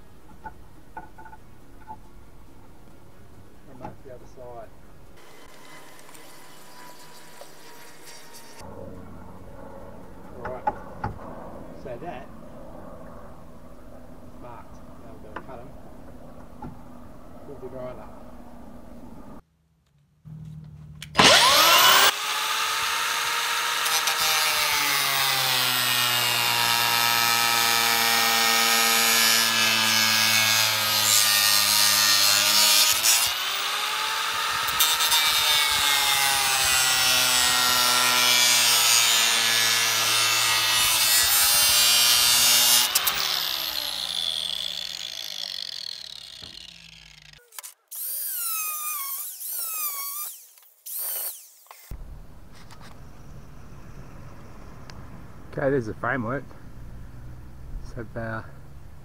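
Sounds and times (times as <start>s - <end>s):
angle grinder cutting plastic pipe: 5.2s - 8.7s, 21.1s - 52.0s
angle grinder whining: 5.2s - 8.7s, 21.0s - 52.0s.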